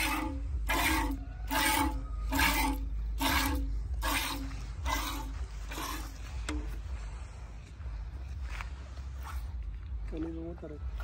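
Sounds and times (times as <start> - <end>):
milk squirting into steel pot: 0.0 - 6.1.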